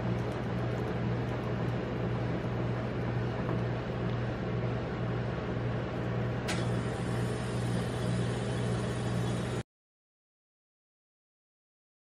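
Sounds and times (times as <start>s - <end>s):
refrigeration compressor humming: 0.0s - 9.6s.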